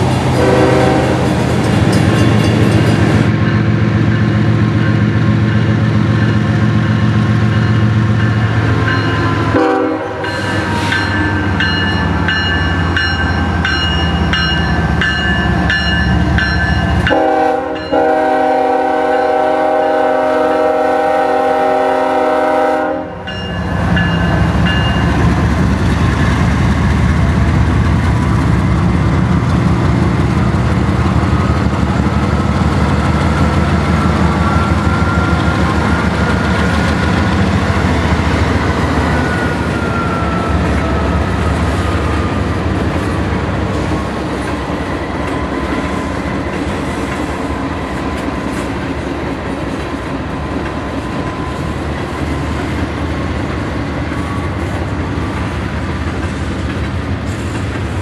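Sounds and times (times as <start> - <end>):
diesel locomotive engines droning: 0.0 - 58.0
train air horn blasts: 0.3 - 1.4, 9.5 - 11.6, 17.1 - 23.3.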